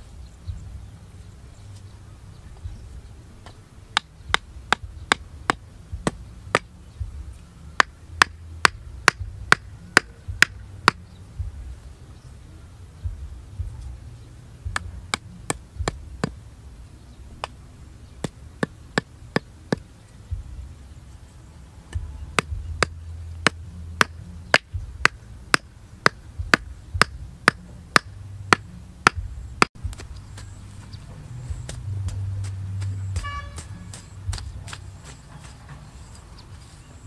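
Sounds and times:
hammer knocking bamboo stakes: 3.9s - 7.1s, 7.8s - 11.0s, 14.7s - 16.4s, 18.2s - 20.5s, 21.9s - 30.5s, 31.6s - 35.8s.

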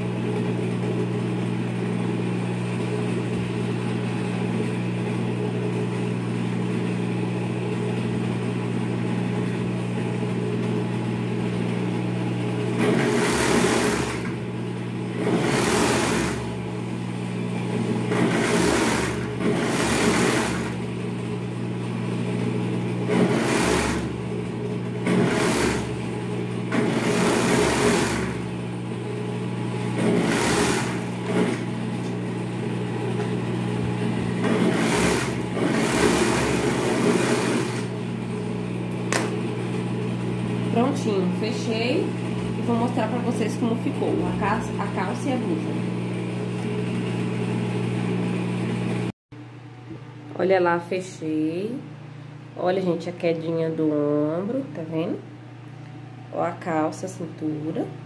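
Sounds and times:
sewing table motor humming: 0.0s - 49.1s
overlock machine stitching: 12.7s - 14.5s, 15.1s - 16.6s, 17.8s - 21.0s, 23.0s - 28.6s, 29.9s - 32.2s, 33.3s - 39.4s.

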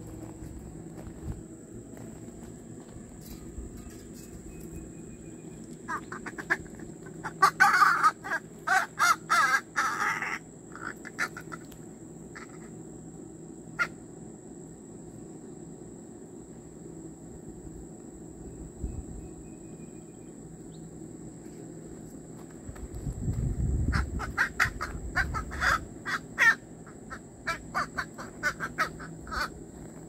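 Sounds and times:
crow calling: 5.8s - 12.7s, 13.8s - 14.0s, 23.9s - 29.6s.

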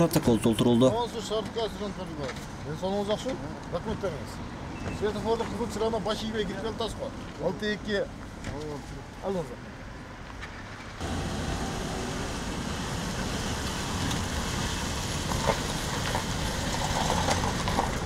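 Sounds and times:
car engine running: 11.0s - 18.0s.

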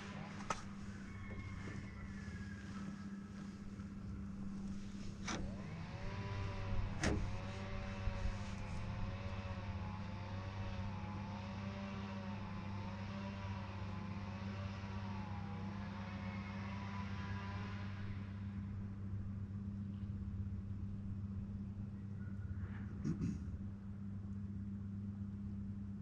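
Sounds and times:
boat motor humming: 0.0s - 26.0s.

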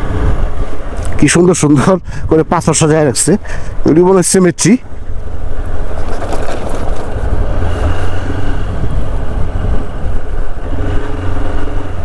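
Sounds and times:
wind on microphone: 5.0s - 12.0s.

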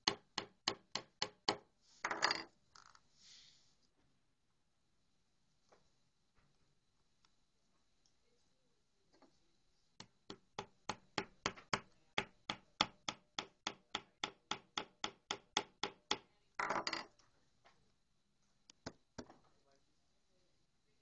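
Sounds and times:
hammer tapping on wooden frame: 0.0s - 1.7s, 10.0s - 16.3s.

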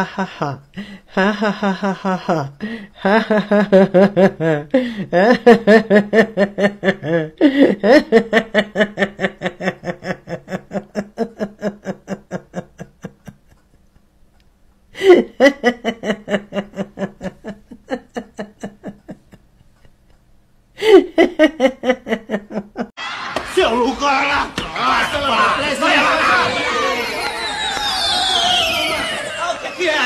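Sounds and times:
woman laughing: 0.0s - 14.0s, 15.0s - 20.2s, 20.8s - 22.9s.

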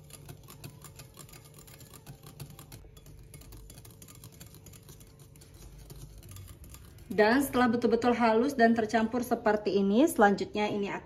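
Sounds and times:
wire whisk clicking against bowl: 0.0s - 7.6s.

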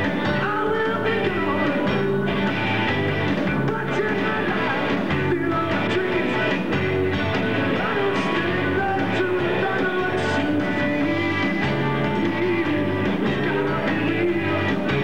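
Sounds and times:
lead vocal singing: 0.0s - 2.6s, 3.4s - 15.0s
bass guitar: 0.0s - 15.0s
drums: 0.0s - 15.0s
electric guitar: 0.0s - 15.0s
keyboards: 0.0s - 15.0s.

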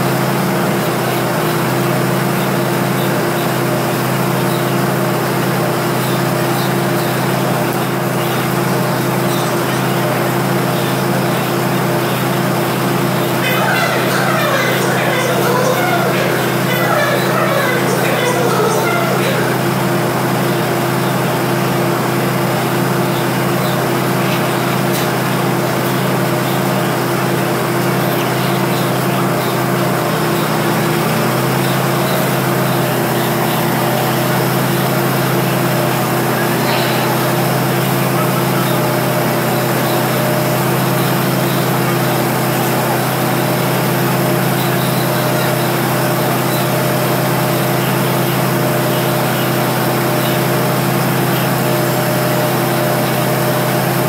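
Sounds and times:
diesel train engine idling: 13.2s - 21.6s
crowd voices: 13.4s - 20.5s, 35.8s - 39.0s.

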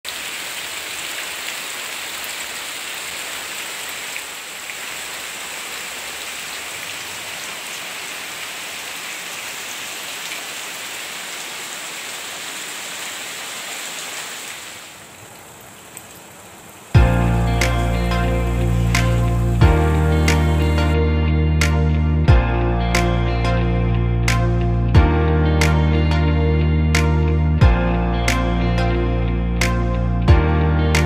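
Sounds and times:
rain falling on leaves: 0.0s - 20.9s.

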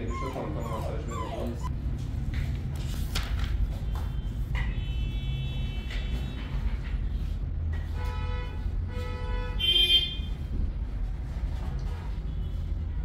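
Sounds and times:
puppy whimpering: 0.0s - 1.7s.

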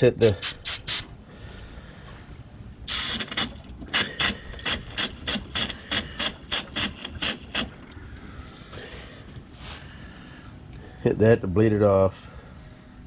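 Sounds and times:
pressure valve hissing: 0.2s - 1.2s, 2.8s - 7.8s.

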